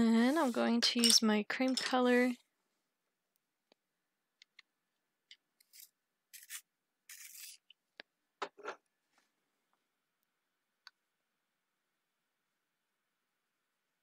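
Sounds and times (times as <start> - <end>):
pencil scraping rubs: 0.2 - 0.8, 5.7 - 7.6.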